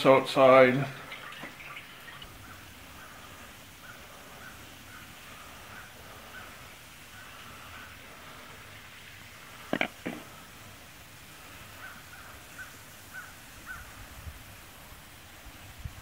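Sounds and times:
crow cawing: 2.4s - 8.6s, 11.4s - 14.0s.

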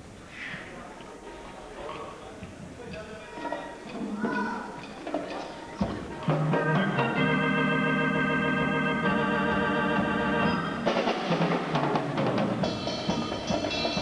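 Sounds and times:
organ-like keyboard chords: 5.8s - 14.0s
drum hits: 8.7s - 14.0s.

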